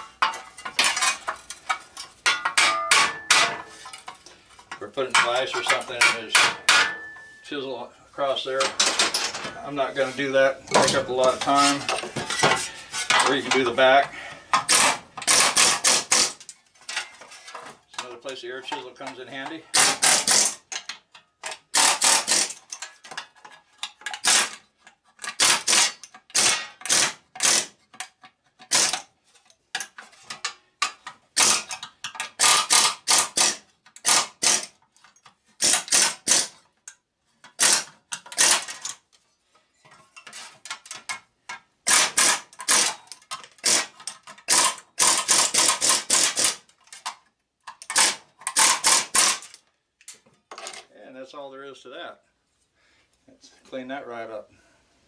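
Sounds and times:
air chisel hammering steel rivets: 0:02.3 - 0:03.8, 0:05.2 - 0:07.2, 0:14.6 - 0:16.5, 0:19.7 - 0:22.8, 0:25.3 - 0:27.8, 0:28.6 - 0:29.1, 0:30.8 - 0:34.8, 0:35.6 - 0:36.6, 0:37.5 - 0:38.8, 0:41.8 - 0:46.6, 0:47.8 - 0:49.6.

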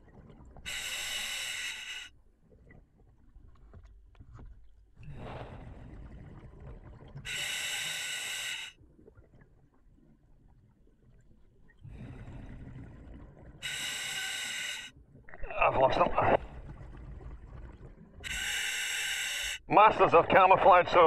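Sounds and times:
hissing inhalations through regulator: 0:00.7 - 0:02.1, 0:07.3 - 0:08.8, 0:13.6 - 0:15.0, 0:18.2 - 0:19.7
exhaled bubbles rushing: 0:05.0 - 0:07.3, 0:11.8 - 0:13.6, 0:15.2 - 0:18.3.

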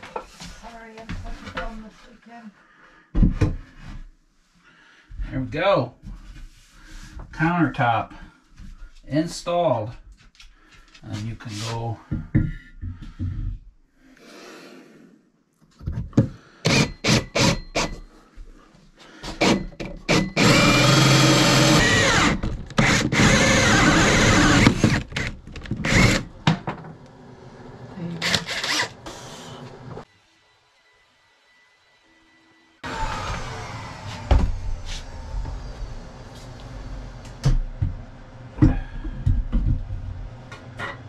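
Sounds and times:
cordless drill boring wood: 0:16.6 - 0:17.9, 0:19.4 - 0:26.3, 0:28.2 - 0:29.2, 0:32.8 - 0:34.6.

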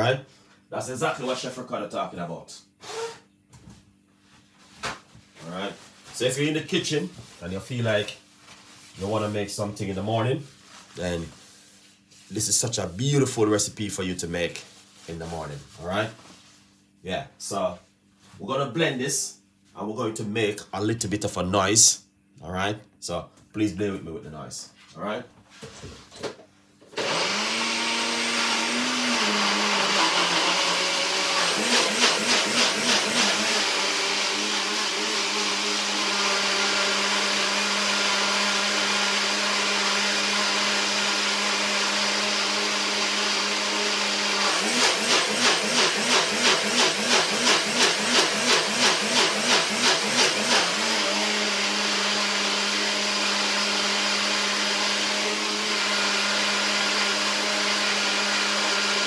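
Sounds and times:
blender running: 0:02.8 - 0:03.2, 0:26.9 - 0:59.0.

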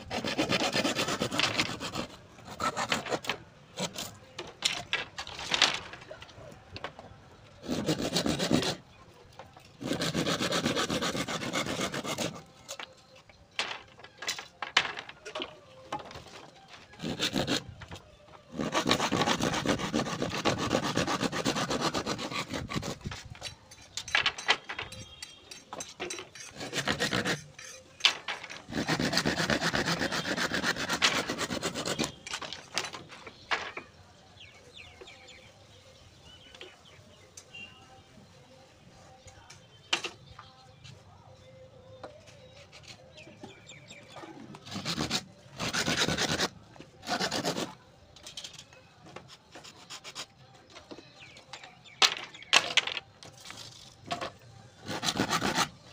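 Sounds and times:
blade sawing bamboo: 0:00.0 - 0:04.2, 0:07.6 - 0:08.8, 0:09.8 - 0:12.8, 0:16.9 - 0:17.7, 0:18.5 - 0:23.3, 0:26.4 - 0:27.8, 0:28.6 - 0:32.8, 0:44.6 - 0:47.8, 0:54.8 - 0:55.9.

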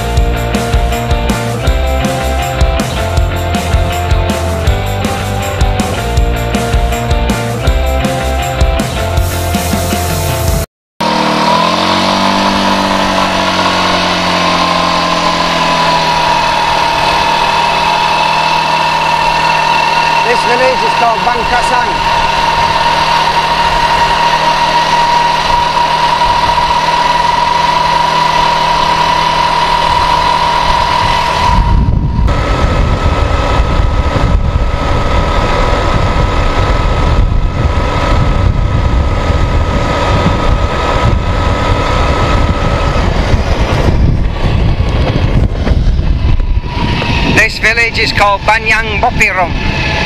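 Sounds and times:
quad bike engine whine: 0:00.0 - 0:50.0
wind rumble on microphone: 0:11.2 - 0:50.0.

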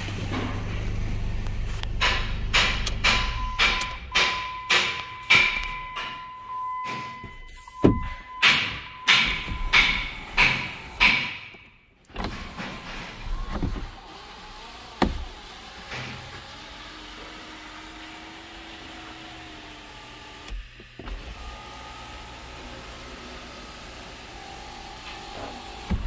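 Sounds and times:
sharp click: 0:01.8 - 0:06.2
loud knocks: 0:02.0 - 0:11.7.

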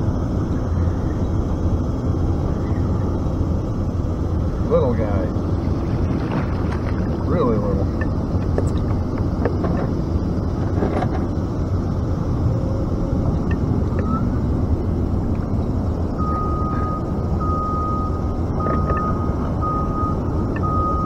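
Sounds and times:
low rumbling noise: 0:00.0 - 0:21.0
high electronic beep: 0:13.4 - 0:14.4, 0:16.2 - 0:21.0.

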